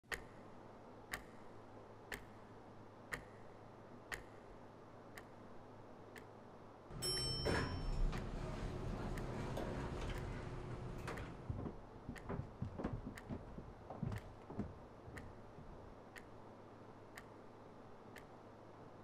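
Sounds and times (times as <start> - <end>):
wall clock ticking: 0.0 - 0.4, 1.1 - 1.5, 2.1 - 2.4, 3.1 - 3.5, 4.1 - 5.3, 6.9 - 16.3
low room hum: 0.0 - 19.0.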